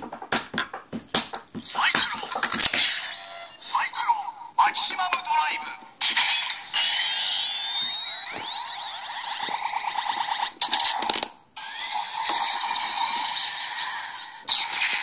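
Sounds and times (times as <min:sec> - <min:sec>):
toy belt electronic sweeps: 0:06.1 - 0:15.0.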